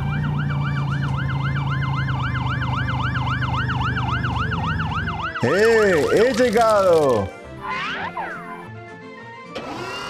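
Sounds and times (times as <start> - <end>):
toy siren warbling: 3.5 - 7.0, 7.6 - 8.7.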